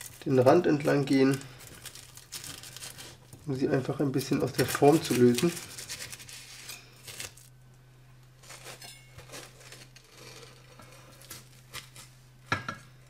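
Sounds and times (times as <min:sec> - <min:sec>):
knife scraping baking dish: 0:08.4 - 0:12.0.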